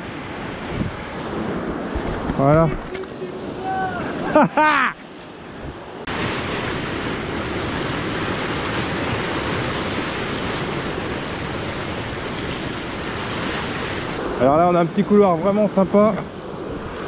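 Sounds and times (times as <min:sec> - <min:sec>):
wind on microphone: 0:00.0 - 0:04.4, 0:05.5 - 0:14.7
surf breaking on rocks: 0:06.0 - 0:16.2.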